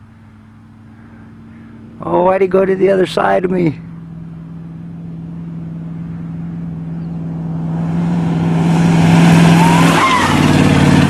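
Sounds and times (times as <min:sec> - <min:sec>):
pickup truck engine racing past: 0:05.4 - 0:11.0.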